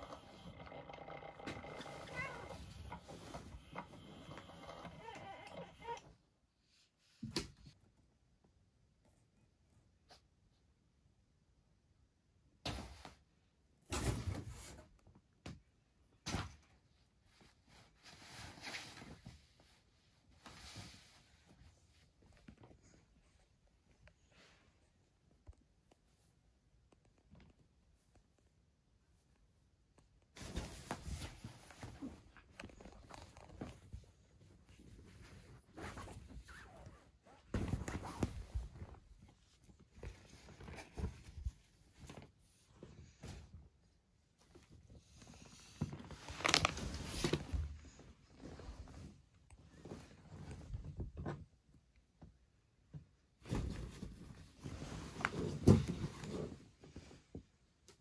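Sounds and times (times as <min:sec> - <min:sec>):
cats thumping on cushion: 0:37.4 - 0:39.2.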